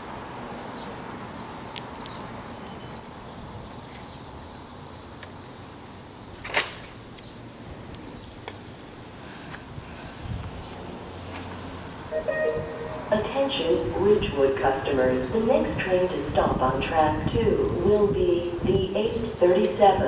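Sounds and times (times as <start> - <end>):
low outdoor hum: 0.0 - 20.0
insect chirping: 0.2 - 6.4, 7.0 - 11.3, 11.9 - 13.1.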